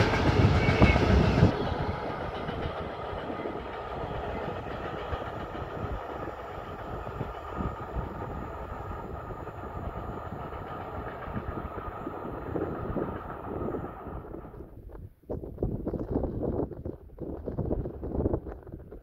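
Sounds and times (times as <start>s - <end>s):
freight train rolling on rails: 0.0s - 15.0s.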